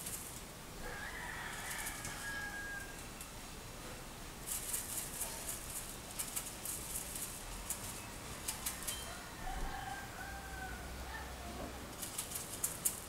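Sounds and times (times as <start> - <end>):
bird scratching in seed cup: 4.4 - 9.0, 11.9 - 13.0.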